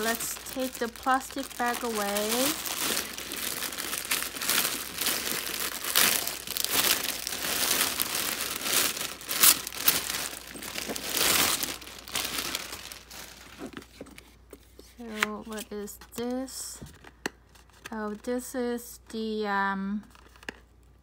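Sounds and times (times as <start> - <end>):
plastic wrapping crinkling: 0.0 - 14.4.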